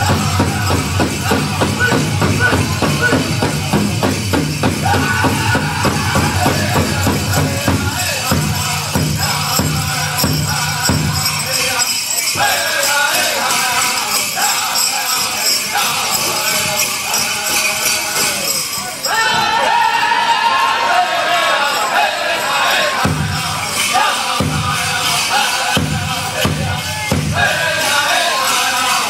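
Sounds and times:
steady big drum beat: 0.0 - 11.6, 25.7 - 27.8
ankle bells jingling: 0.0 - 20.0, 20.7 - 29.0
group singing in high voices: 0.0 - 29.0.

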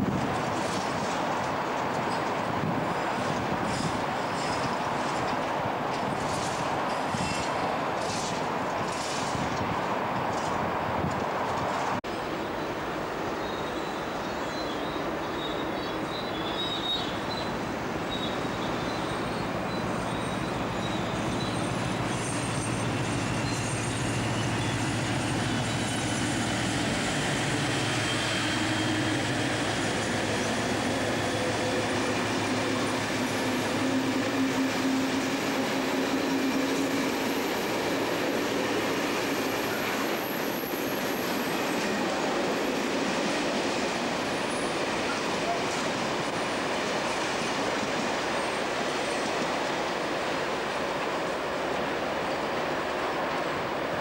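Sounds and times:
diesel locomotive engine drone: 0.0 - 54.0
high wheel squeal: 18.1 - 42.1.

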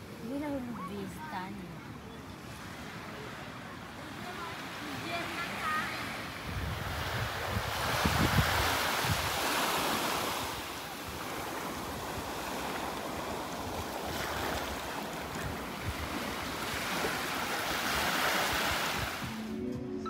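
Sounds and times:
small waves washing on beach: 0.0 - 19.5
wind buffeting microphone: 5.6 - 19.5.

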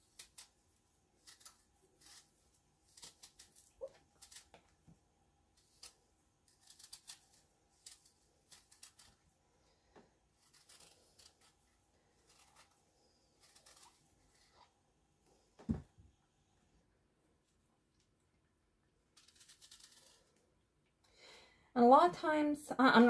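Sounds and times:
knife scraping apple skin: 0.0 - 4.8, 5.5 - 14.7, 19.1 - 20.4.

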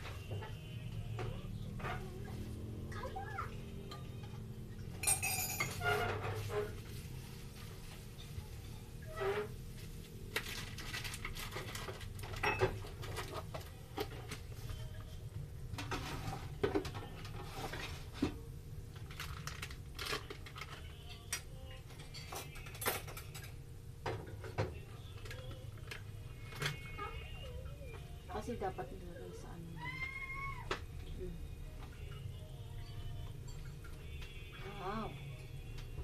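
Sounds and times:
dishes and cups clinking: 3.9 - 6.7, 12.2 - 14.1, 21.0 - 24.7.

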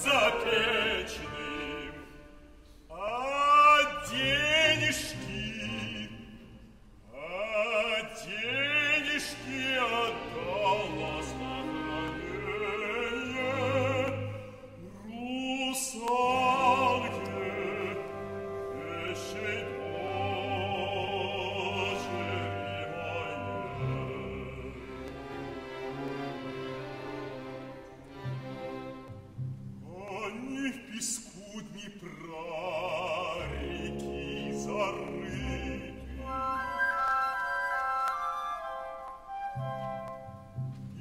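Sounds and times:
man singing opera: 0.0 - 25.7, 29.8 - 37.8
symphony orchestra: 0.0 - 41.0.

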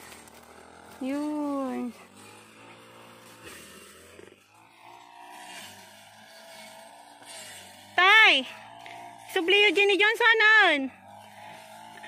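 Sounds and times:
faint steady engine hum: 0.0 - 12.0.

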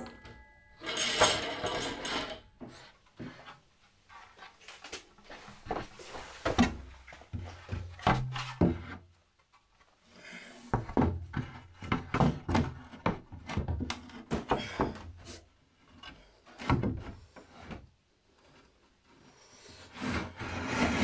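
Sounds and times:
wooden boards knocking and thudding: 6.5 - 9.0, 10.7 - 15.2, 16.6 - 17.2
wooden boards sliding: 19.5 - 21.0.

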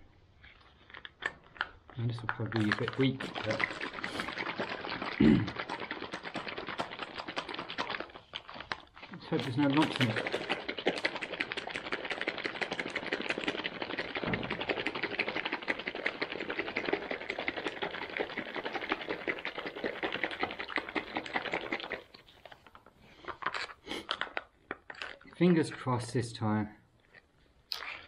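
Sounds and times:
pouch rattling and crinkling: 2.4 - 22.0.

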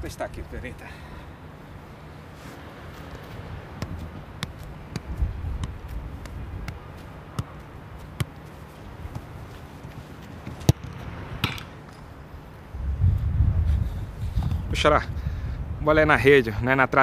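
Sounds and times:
football being kicked: 3.7 - 11.7.

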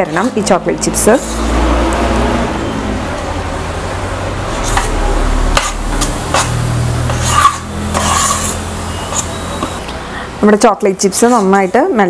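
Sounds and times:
metal spoon scraping pot: 0.0 - 1.6, 5.6 - 9.8, 11.1 - 11.8.

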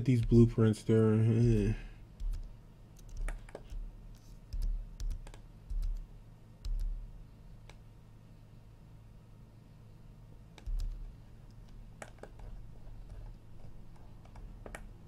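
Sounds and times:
low electrical hum: 0.0 - 15.0
keyboard and mouse clicks: 2.2 - 7.0, 10.5 - 15.0.

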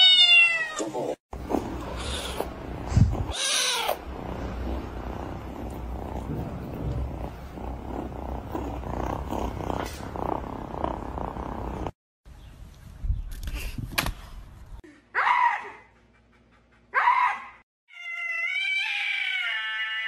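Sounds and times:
cat meowing: 0.0 - 0.9, 3.3 - 4.0
kitten purring: 1.0 - 12.0
kitten high cry: 3.3 - 4.0, 17.0 - 20.0.

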